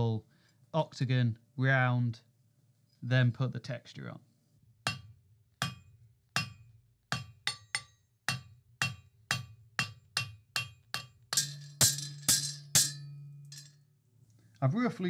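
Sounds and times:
hammer striking steel on anvil: 4.9s - 13.8s.

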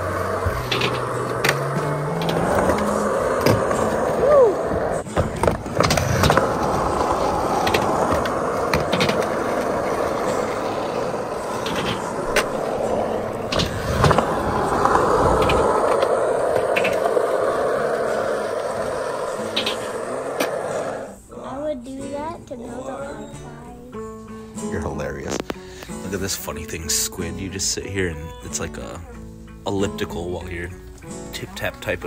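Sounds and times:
skateboard wheels rolling on concrete: 0.0s - 21.2s.

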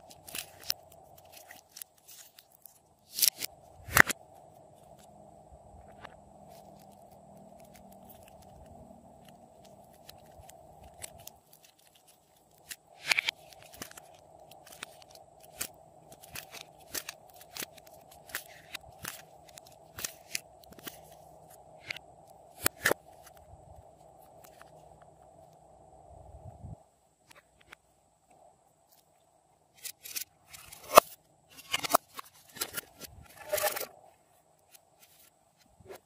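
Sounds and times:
modelling clay crackling: 0.0s - 25.6s
faint steady hum: 0.0s - 36.0s.

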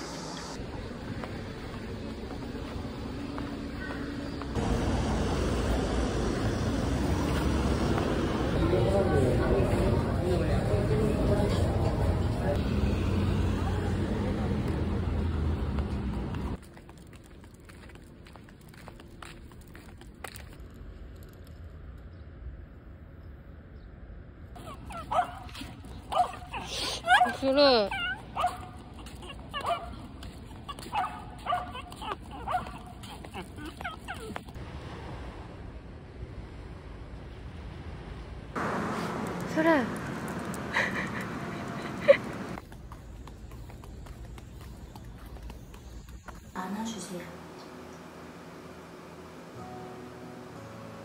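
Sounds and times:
traffic rumble: 0.0s - 51.0s
small dog whining and yipping: 24.6s - 34.6s.

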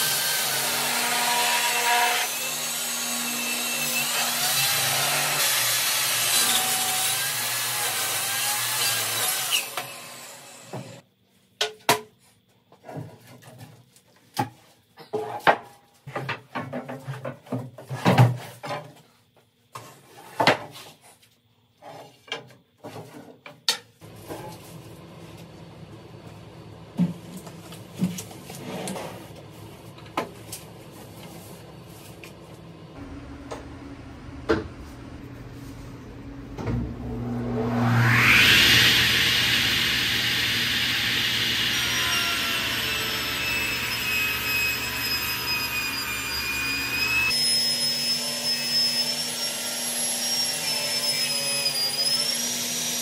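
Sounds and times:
table saw motor whine: 0.0s - 11.0s, 36.1s - 53.0s
shop machinery hum: 24.0s - 52.4s.

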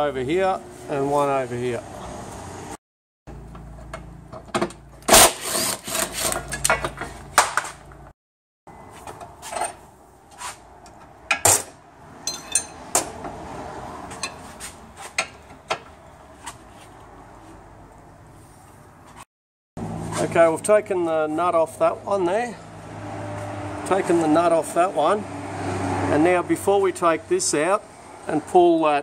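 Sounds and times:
steel tools clinking on metal: 12.2s - 12.9s.

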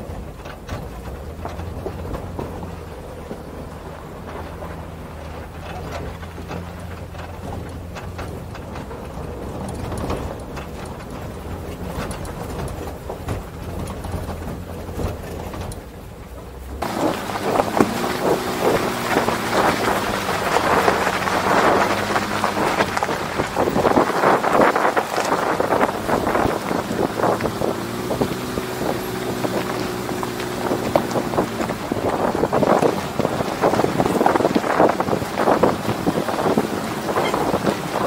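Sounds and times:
truck engine hum: 0.0s - 38.0s
tyres crunching gravel: 0.0s - 38.0s
wind buffeting microphone: 0.0s - 38.0s.

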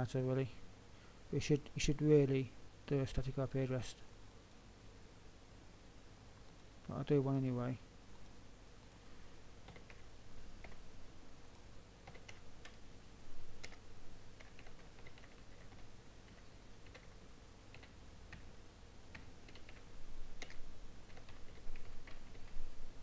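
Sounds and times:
steady low hum: 0.0s - 23.0s
keyboard typing: 9.6s - 10.8s, 12.0s - 12.8s, 13.6s - 13.8s, 14.4s - 18.5s, 19.1s - 22.6s.

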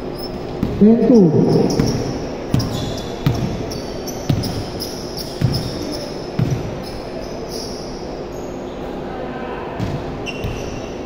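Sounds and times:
shoe squeaks: 0.1s - 0.4s, 1.1s - 8.7s, 10.2s - 11.0s
basketball bouncing on hardwood: 1.7s - 3.6s.

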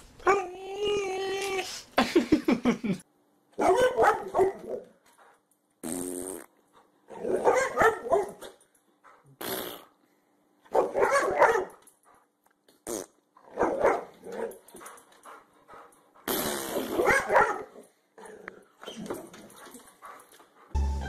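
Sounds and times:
dog barking and growling: 3.6s - 4.9s, 7.1s - 8.6s, 10.7s - 11.8s, 13.4s - 14.6s, 16.7s - 19.4s.

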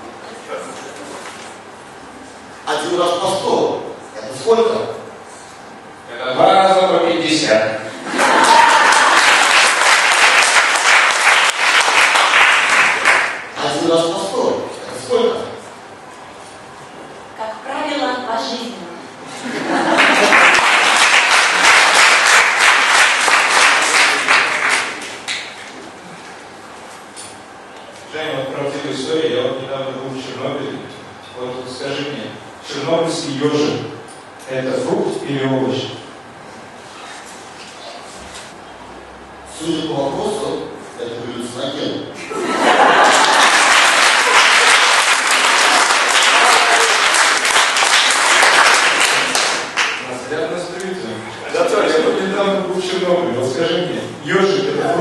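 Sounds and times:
audience applauding: 8.1s - 13.6s, 19.9s - 25.6s, 42.7s - 50.2s.

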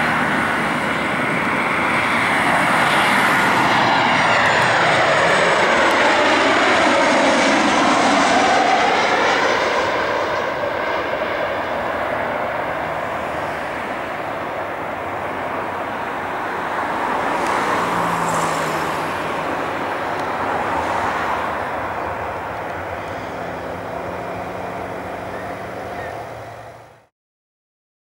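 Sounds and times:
jet engines roaring: 0.0s - 27.1s.

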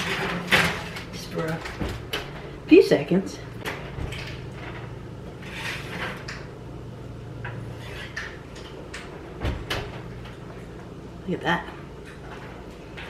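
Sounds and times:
low steady hum: 0.0s - 13.0s
oven door opening: 3.6s - 6.6s, 7.4s - 10.5s.

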